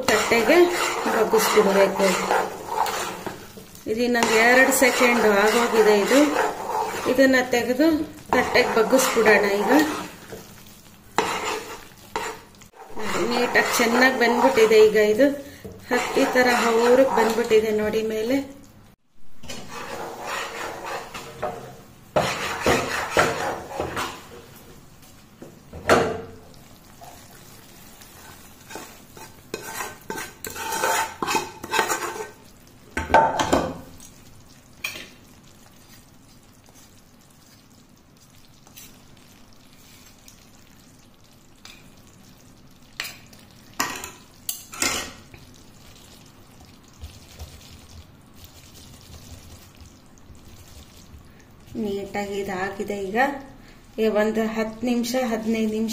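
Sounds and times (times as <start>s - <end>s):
metal ladle scraping pan: 0.0s - 10.6s, 11.2s - 15.2s, 15.8s - 17.7s, 19.4s - 24.3s, 28.1s - 32.4s, 43.8s - 45.2s
faint sizzle: 0.0s - 55.9s.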